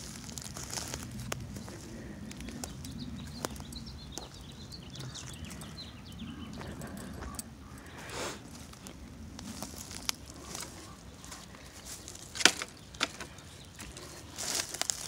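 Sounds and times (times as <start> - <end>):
footsteps crunching dry leaves: 0.0 - 5.8, 6.6 - 15.0
twigs snapping: 9.3 - 10.7, 11.8 - 15.0.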